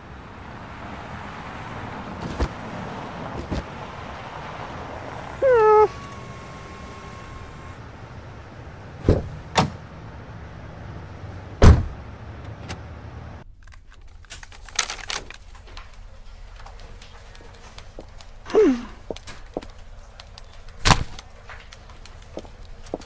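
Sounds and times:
car door slamming shut: 11.6 - 12.0.

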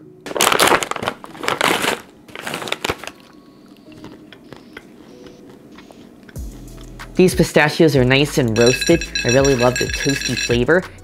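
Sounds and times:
plastic snack pouch crinkling: 0.3 - 3.4.

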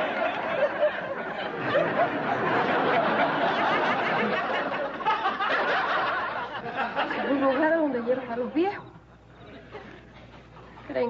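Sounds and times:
audience laughing: 0.0 - 8.2.

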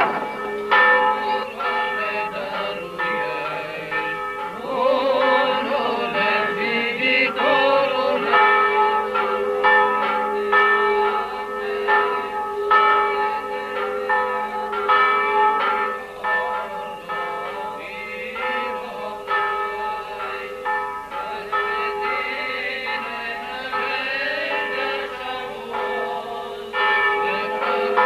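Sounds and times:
church bells ringing: 0.0 - 28.0
chant-like singing: 4.5 - 8.5, 21.2 - 28.0.

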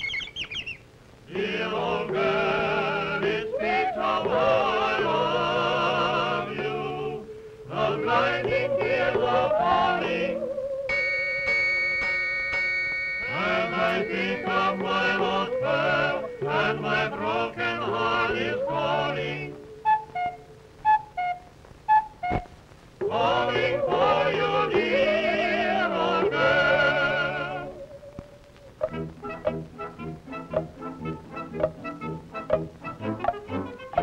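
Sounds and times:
group singing in harmony: 1.3 - 10.9, 13.2 - 20.0, 23.0 - 27.9.

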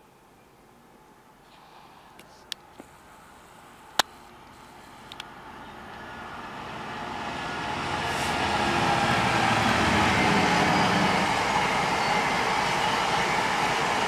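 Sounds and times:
diesel locomotive engine: 3.0 - 14.0
train wheel noise: 4.6 - 14.0.

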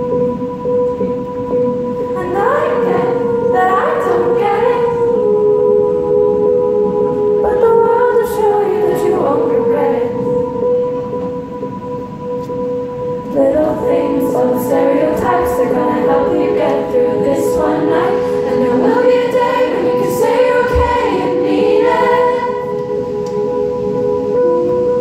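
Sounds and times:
steady held musical note: 0.0 - 25.0
woman singing slow melody: 2.1 - 6.2, 7.4 - 10.6, 13.3 - 22.9.

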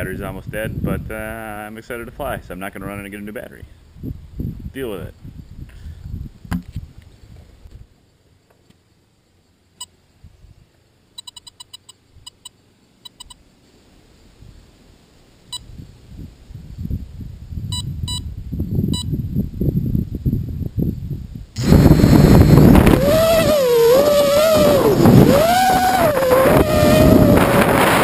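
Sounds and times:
wind buffeting microphone: 0.0 - 1.4, 3.8 - 7.9, 15.6 - 28.0
short electronic beeps: 11.2 - 13.4, 17.7 - 18.3.

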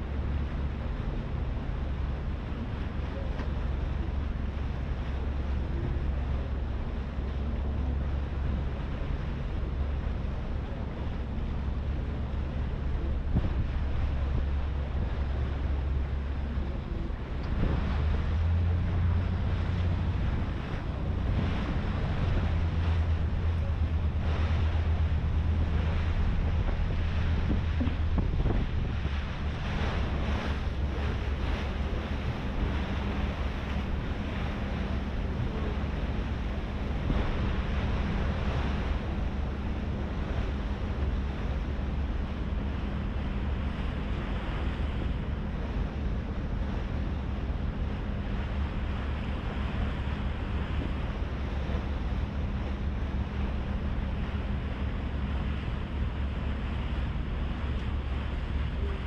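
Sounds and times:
low ferry engine drone: 0.0 - 59.0
water rushing along hull: 0.0 - 59.0
wind on microphone: 0.0 - 59.0.

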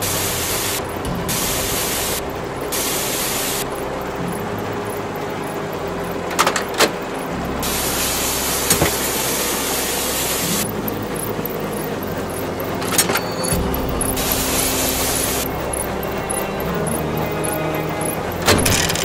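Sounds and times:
hiss: 0.0 - 3.8, 7.6 - 11.9
low tank engine rumble: 0.0 - 19.0.

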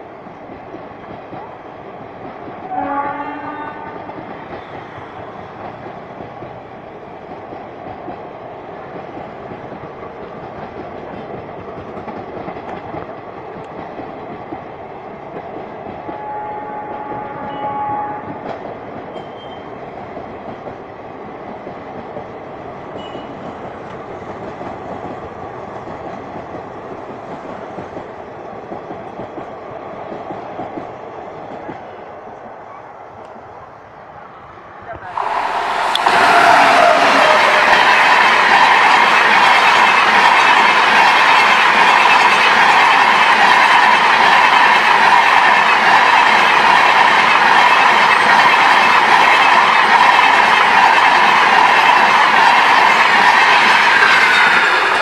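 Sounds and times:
train wheels clacking on rails: 0.0 - 32.0, 35.2 - 55.0
train horn: 2.7 - 4.2, 16.0 - 18.5, 35.1 - 38.5.

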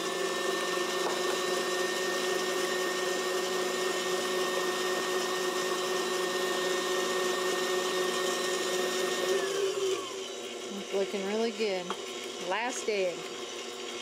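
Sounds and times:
stand mixer motor whine: 0.0 - 14.0.

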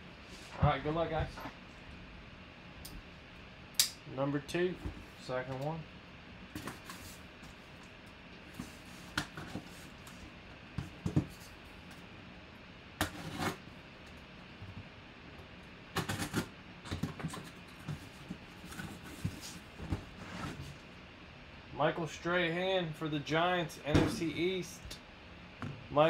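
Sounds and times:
cardboard scraping and rustling: 17.0 - 20.8.

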